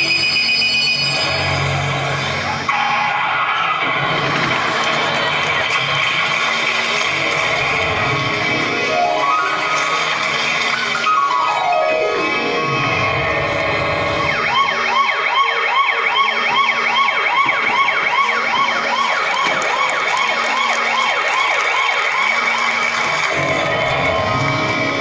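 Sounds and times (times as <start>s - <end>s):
yelping siren: 0.0s - 3.8s, 7.6s - 25.0s.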